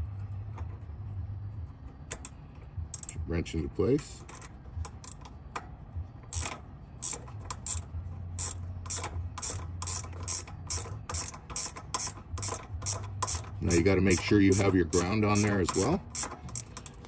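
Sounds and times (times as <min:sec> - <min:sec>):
ratcheting wrench clicking: 0:02.1 - 0:03.2, 0:04.2 - 0:05.6, 0:06.3 - 0:17.0.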